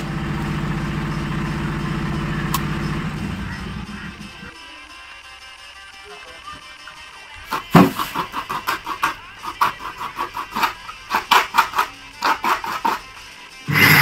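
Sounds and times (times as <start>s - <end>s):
coconut scraping on steel plate: 7.5s - 14.0s.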